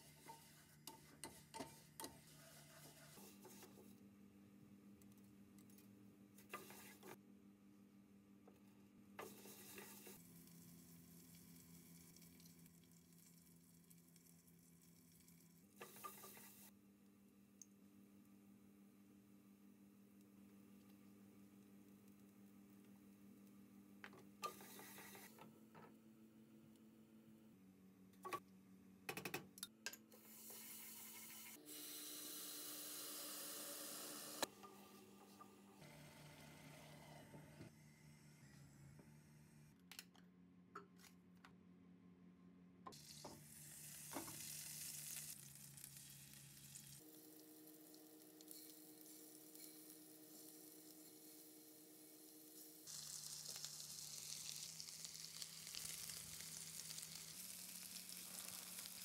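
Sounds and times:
pasta sizzling in a saucepan: 0:43.0 - 0:59.0.

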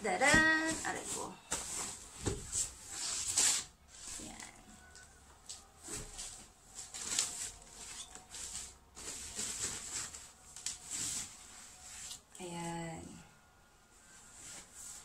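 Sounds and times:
packaging rustling: 0:05.9 - 0:11.4.

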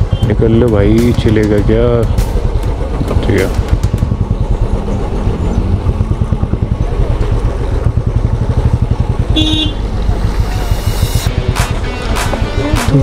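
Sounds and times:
motorcycle engine running: 0:00.0 - 0:13.0
horn toot: 0:09.3 - 0:09.9.

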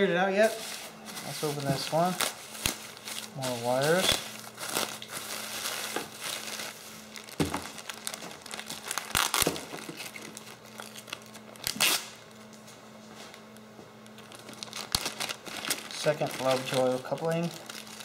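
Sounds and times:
bubble wrap and plastic bag crinkling: 0:00.4 - 0:12.2, 0:14.0 - 0:18.0.

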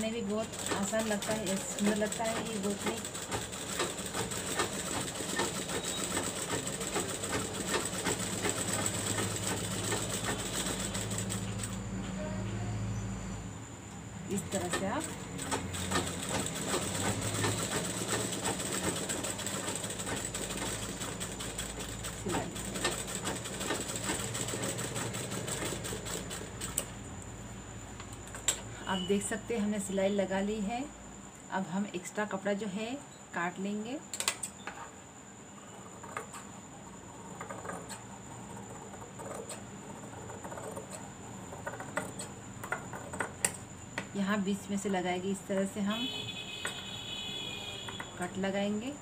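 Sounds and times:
sewing machine stitching: 0:00.0 - 0:11.8, 0:14.3 - 0:26.9.

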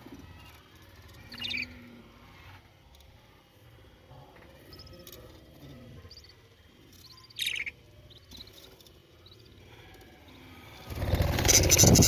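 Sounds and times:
budgerigar chicks chirping: 0:07.0 - 0:08.6, 0:11.0 - 0:12.0.

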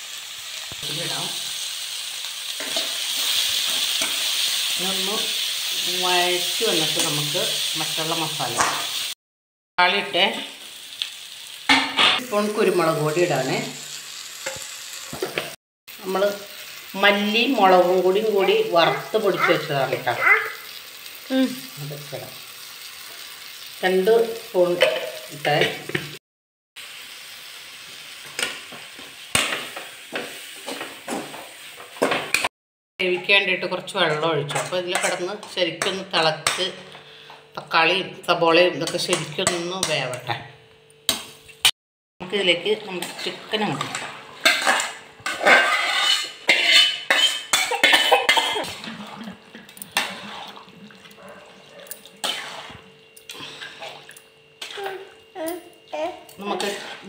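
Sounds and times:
food sizzling in a pan: 0:00.0 - 0:09.2, 0:09.8 - 0:26.2, 0:26.8 - 0:37.0, 0:42.2 - 0:57.0
spoon scraping and knocking pan: 0:02.6 - 0:04.4, 0:14.4 - 0:15.6, 0:28.2 - 0:33.4, 0:34.0 - 0:37.0, 0:42.9 - 0:54.0, 0:56.4 - 0:57.0
spatula scraping metal pot: 0:43.0 - 0:54.9, 0:56.4 - 0:57.0.

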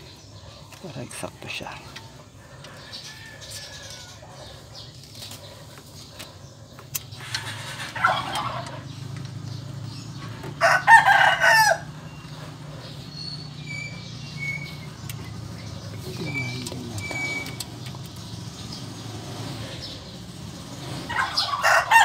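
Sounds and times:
rooster crowing: 0:10.5 - 0:12.3, 0:21.1 - 0:22.0.

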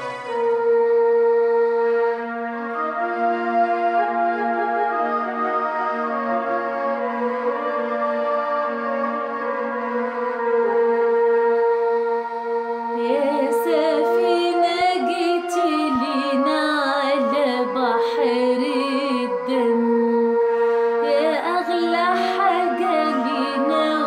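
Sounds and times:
held keyboard chord: 0:00.0 - 0:24.0
woman singing a hymn: 0:13.0 - 0:24.0.

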